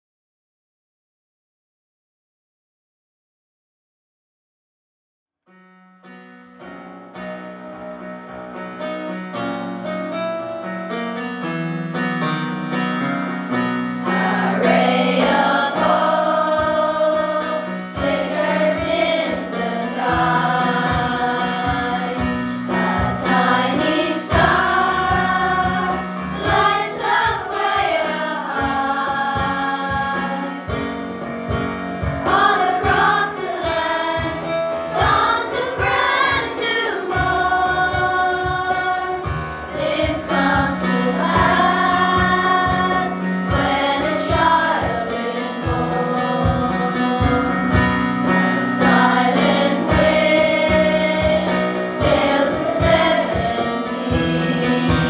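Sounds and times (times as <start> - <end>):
instrumental accompaniment: 5.9 - 55.0
children's choir singing: 14.0 - 30.8, 32.2 - 55.0.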